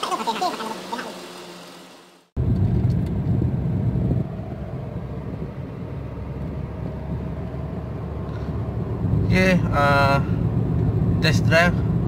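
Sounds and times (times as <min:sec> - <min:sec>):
car engine and road noise: 0:01.2 - 0:12.0.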